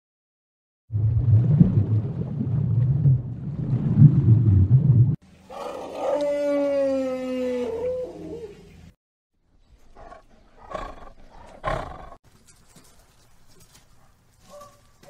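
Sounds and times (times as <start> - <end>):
animal's long falling call: 5.5 - 8.6
tiger growls: 9.9 - 12.2.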